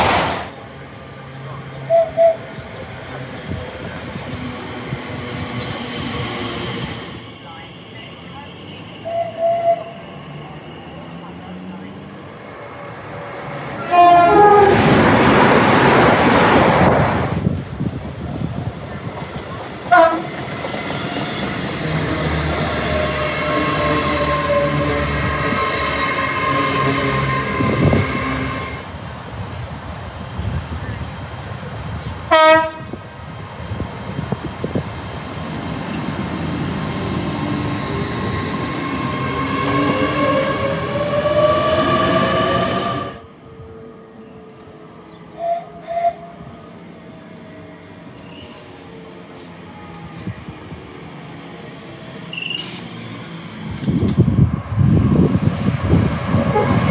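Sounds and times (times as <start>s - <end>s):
train rushing past: 0.0s - 43.3s, 47.8s - 56.9s
two-note train horn: 13.8s - 14.9s, 19.9s - 20.3s, 32.3s - 33.0s
train horn blast: 13.8s - 15.0s, 19.9s - 20.3s, 23.4s - 28.8s, 32.3s - 33.0s, 56.4s - 56.9s
train wheel clicks: 53.7s - 54.3s.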